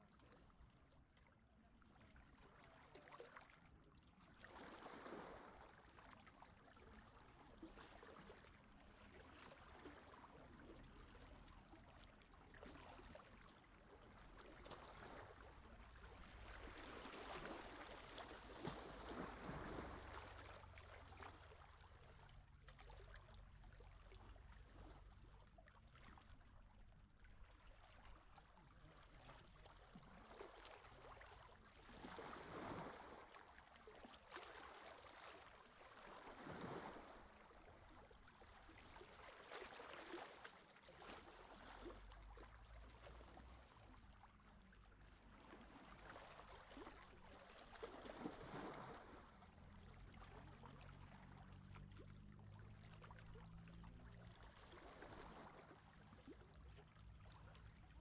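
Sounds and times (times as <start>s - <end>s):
small waves washing on beach: 14.2s - 21.2s, 34.2s - 42.3s
low steady rumble: 41.3s - 58.0s.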